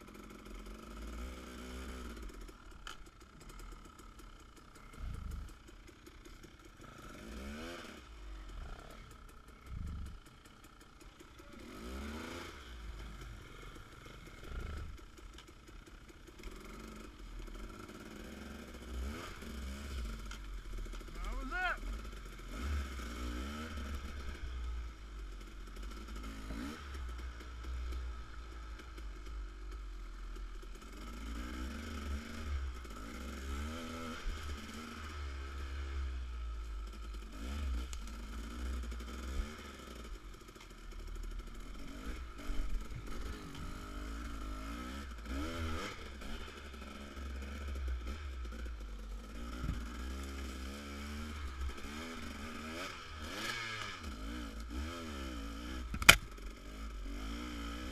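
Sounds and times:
dirt bike engine revving: 0:00.1 - 0:15.4, 0:16.3 - 0:29.3, 0:30.8 - 0:57.9
steady low rumble: 0:04.8 - 0:05.7, 0:08.0 - 0:10.3.

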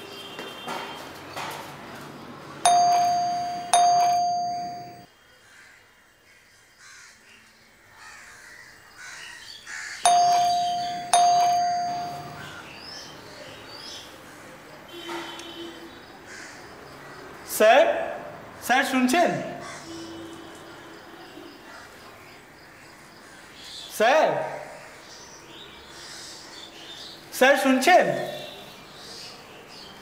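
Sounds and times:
doorbell chiming: 0:02.7 - 0:05.1, 0:10.1 - 0:12.6.

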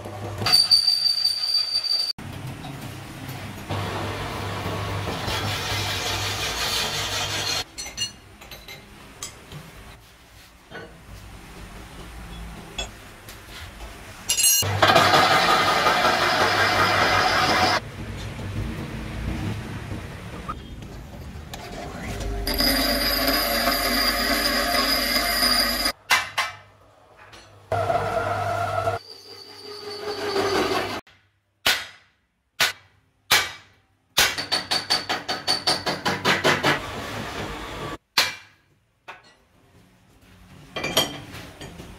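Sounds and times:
metal lathe scraping: 0:05.2 - 0:07.6, 0:15.2 - 0:17.8, 0:21.7 - 0:25.9, 0:27.8 - 0:31.0.

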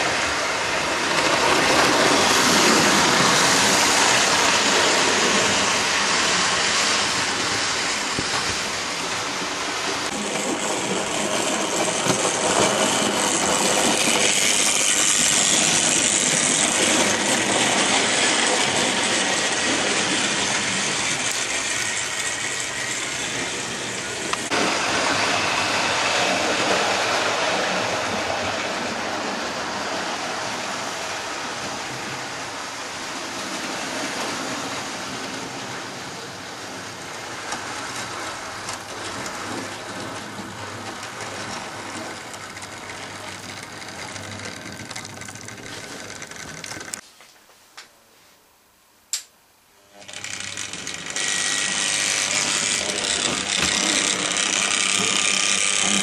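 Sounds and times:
wheels clattering on track: 0:00.0 - 0:25.7, 0:36.8 - 0:47.0
model train motor whirring: 0:10.1 - 0:24.6, 0:37.4 - 0:47.0, 0:49.8 - 0:56.0.

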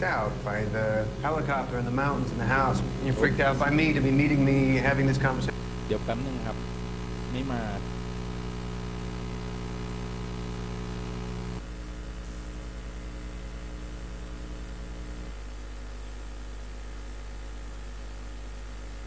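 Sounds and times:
held droning tones: 0:00.0 - 0:11.7
deep hum: 0:00.0 - 0:15.6.

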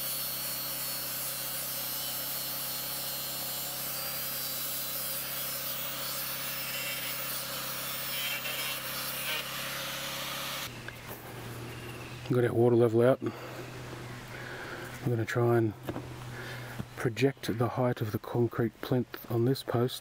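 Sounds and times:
angle grinder cutting steel: 0:00.0 - 0:13.4.

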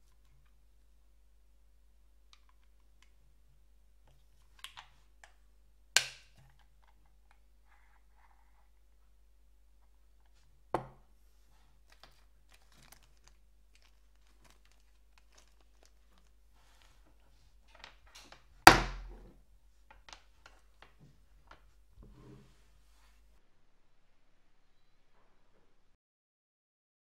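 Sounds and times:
plastic bag crinkling: 0:11.8 - 0:18.4.

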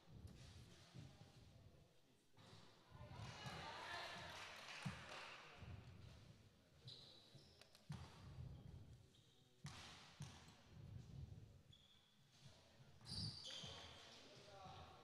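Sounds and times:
basketball bouncing on floor: 0:09.6 - 0:10.5.

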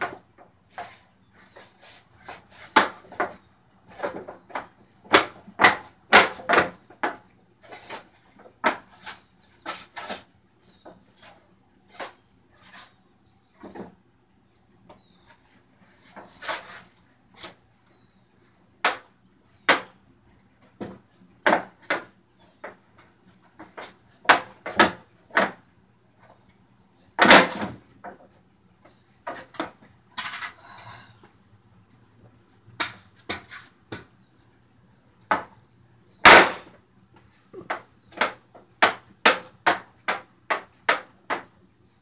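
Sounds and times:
rough scraping noise: 0:15.8 - 0:17.6.

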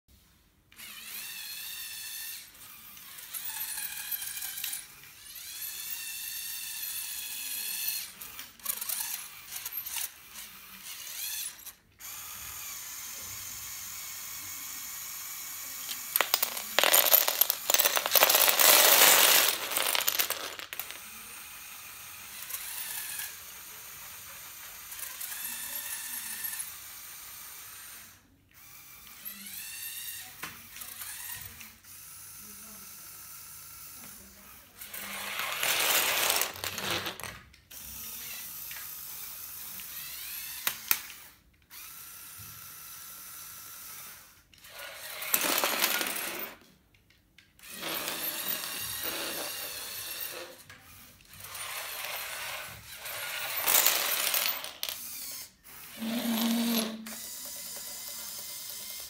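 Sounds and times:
toy truck motors whining: 0:00.7 - 0:46.6, 0:47.5 - 0:59.0
loud rattling grind: 0:15.9 - 0:21.0.

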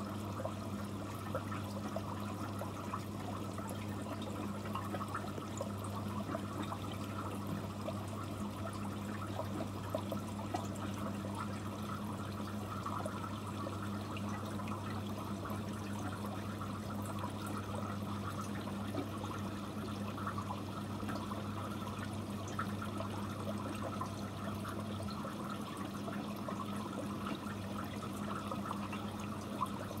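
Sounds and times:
water trickling and bubbling: 0:00.0 - 0:30.0.

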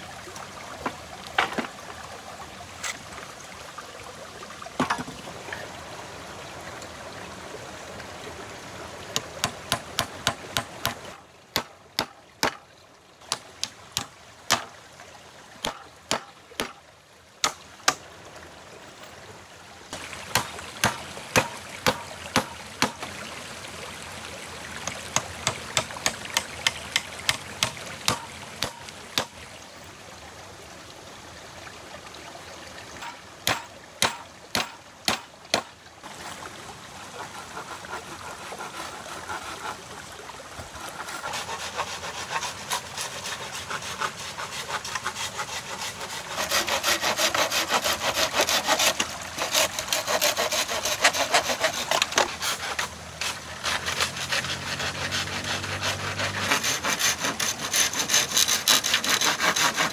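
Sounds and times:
sharp knocks: 0:33.0 - 0:35.7
handsaw cutting wood: 0:37.2 - 0:39.8, 0:40.8 - 0:59.9.

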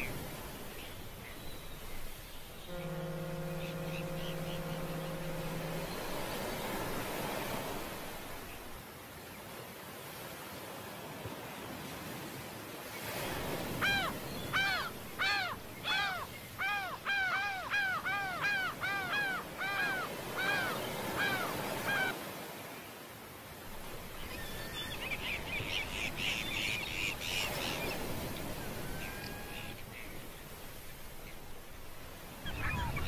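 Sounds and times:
gull calling: 0:02.7 - 0:08.4, 0:13.6 - 0:22.2, 0:26.1 - 0:29.8, 0:32.3 - 0:33.0.

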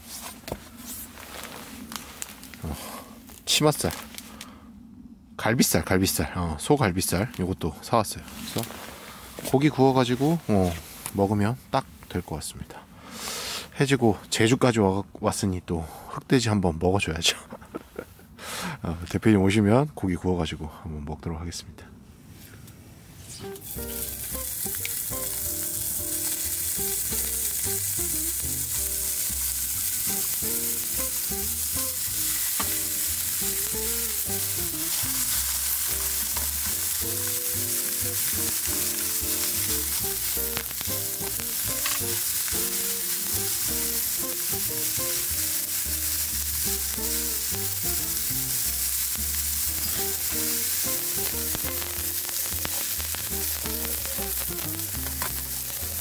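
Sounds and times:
meat sizzling: 0:23.4 - 0:56.0
background music with bass line: 0:23.5 - 0:56.0.

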